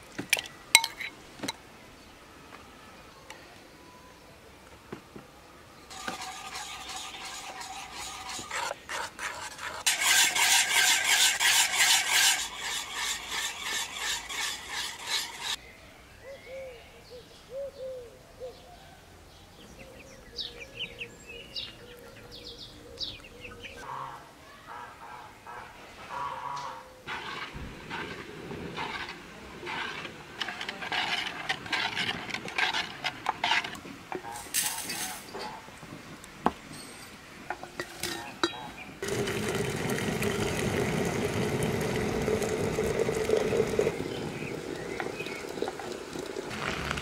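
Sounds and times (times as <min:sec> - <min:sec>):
whisk scraping metal pot: 0:05.9 - 0:15.6, 0:27.1 - 0:35.2, 0:37.5 - 0:47.0.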